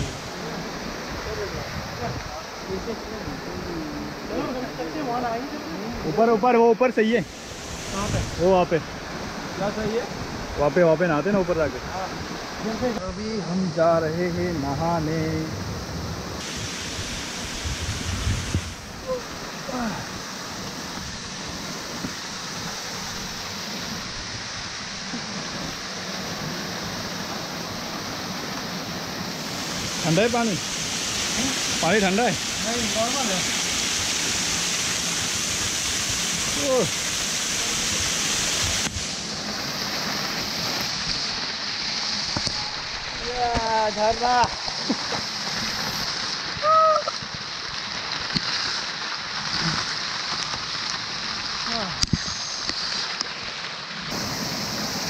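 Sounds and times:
waterfall splashing into pool: 0.0s - 15.5s, 16.4s - 55.0s.

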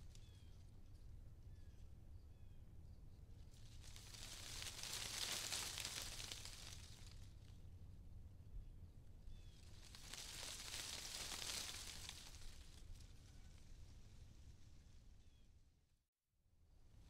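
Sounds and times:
leaves rustling: 3.5s - 7.5s, 9.4s - 15.0s
low steady hum: 6.4s - 9.9s.

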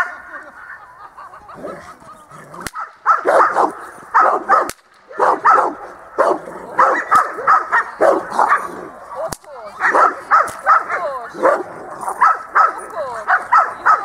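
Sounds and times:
sharp cracks: 2.6s - 5.8s, 6.8s - 7.8s, 9.2s - 11.0s
dog barking: 2.7s - 14.0s.

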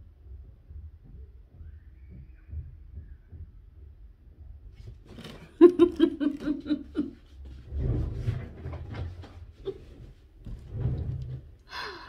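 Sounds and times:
woman laughing: 5.3s - 7.3s.

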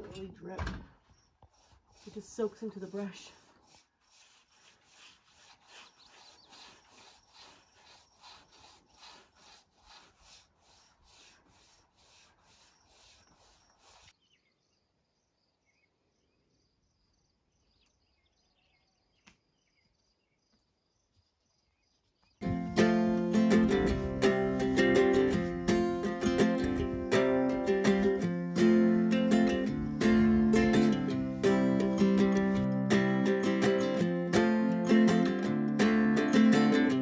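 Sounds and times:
paintbrush scrubbing wood: 1.4s - 14.1s.

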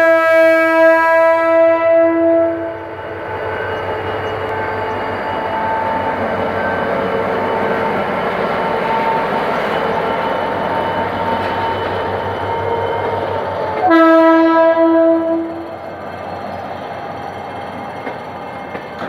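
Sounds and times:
locomotive horn blast: 0.0s - 2.8s, 13.7s - 15.6s.

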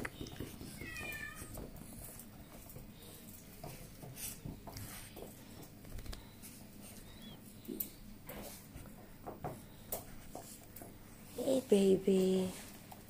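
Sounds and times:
puppy whining: 6.9s - 7.6s.

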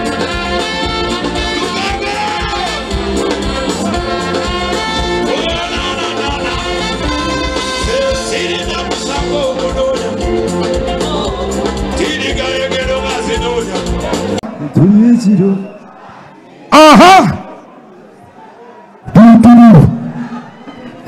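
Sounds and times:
band playing music: 0.0s - 14.6s
lead singer singing: 7.7s - 14.3s.

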